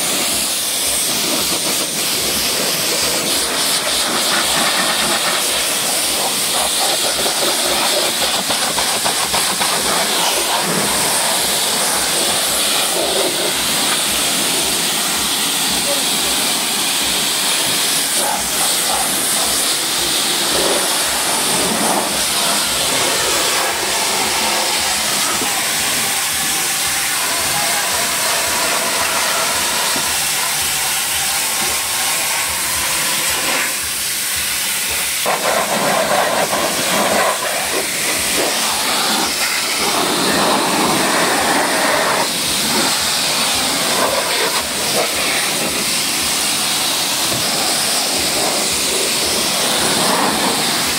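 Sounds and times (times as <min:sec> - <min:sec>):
pressure washer spraying water: 0:00.0 - 0:50.9.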